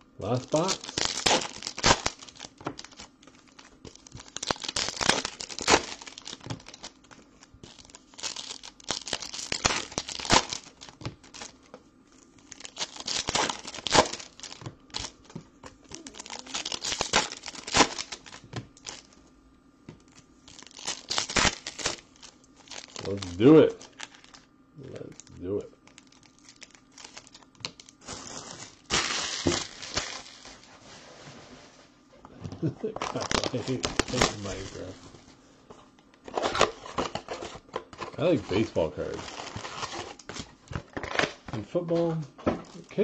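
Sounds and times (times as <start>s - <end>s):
foil wrappers crinkling and tearing: 0.2s - 19.2s, 20.0s - 30.9s, 32.6s - 35.2s, 36.3s - 43.0s.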